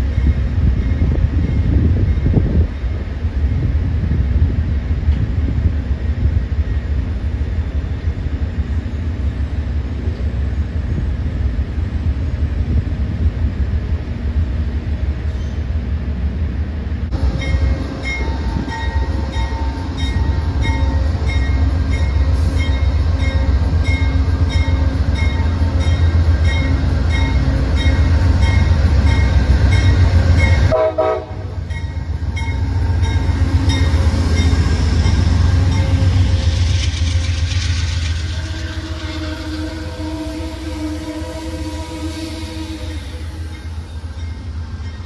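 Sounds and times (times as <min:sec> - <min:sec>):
diesel locomotive engine rumbling: 0:00.0 - 0:45.0
train coaches rumbling past: 0:00.0 - 0:45.0
locomotive bell ringing: 0:17.3 - 0:30.8, 0:31.6 - 0:36.6.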